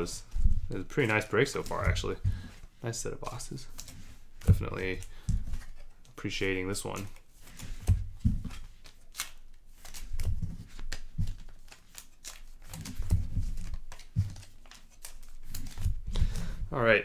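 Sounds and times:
card wrappers rustling and crinkling: 0.0s - 16.7s.

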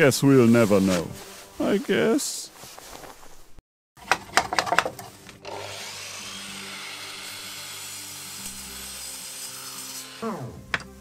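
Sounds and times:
miter saw cutting wood: 5.4s - 10.6s.

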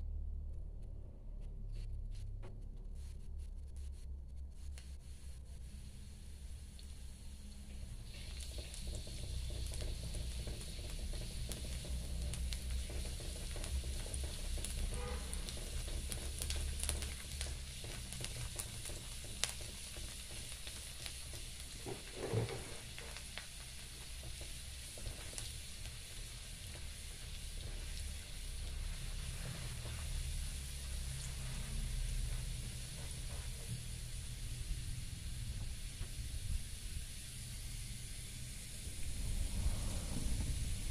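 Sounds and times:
garlic sizzling in hot oil: 4.8s - 40.9s
spatula scraping and tapping wok: 8.2s - 34.0s.

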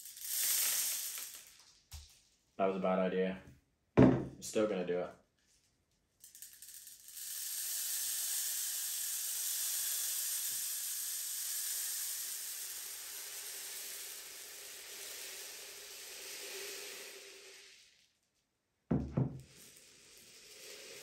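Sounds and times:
pellets pouring into tube: 0.0s - 1.6s, 6.2s - 18.3s, 19.4s - 21.0s.

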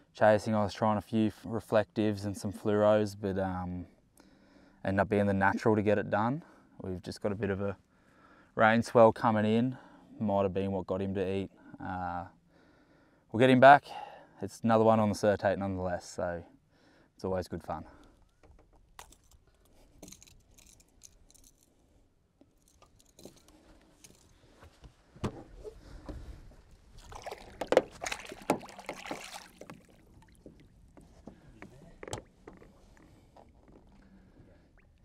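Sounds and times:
water sloshing and splashing: 22.6s - 35.0s
light knocks on boat: 25.2s - 25.5s.

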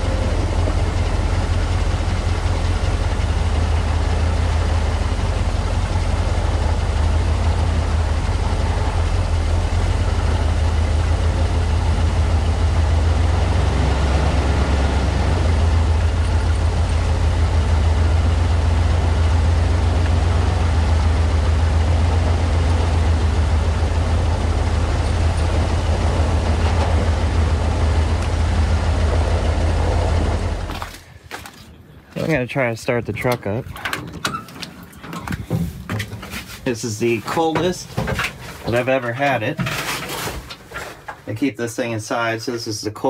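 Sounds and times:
vehicle engine low drone: 0.0s - 39.5s.

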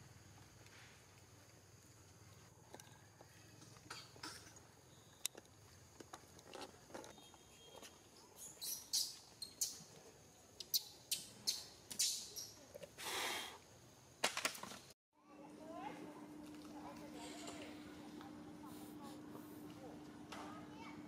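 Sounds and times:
monkeys squeaking and chirping: 8.4s - 9.9s, 10.6s - 12.6s.

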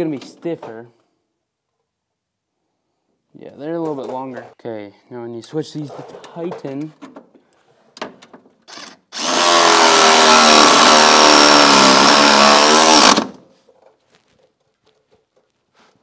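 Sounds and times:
impact wrench running: 8.7s - 13.4s.

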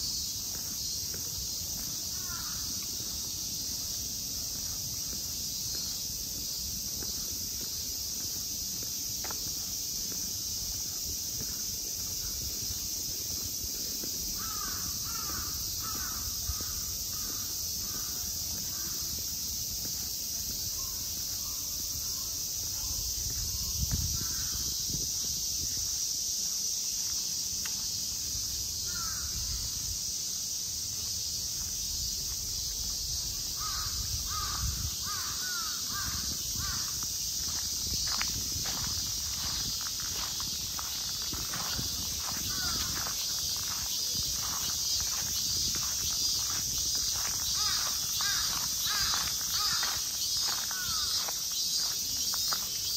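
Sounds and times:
high-pitched hiss: 0.0s - 52.9s
crows cawing: 2.1s - 2.8s, 14.4s - 19.0s, 33.6s - 36.9s, 42.5s - 43.0s, 47.6s - 50.0s, 50.7s - 51.3s.

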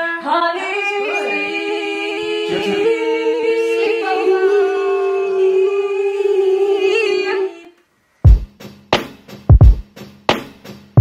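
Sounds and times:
voices singing in harmony: 0.0s - 7.8s.

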